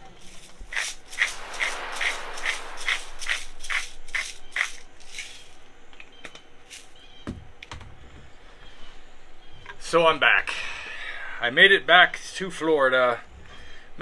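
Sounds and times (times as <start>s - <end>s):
salt shaker rattling: 0.2s - 5.6s.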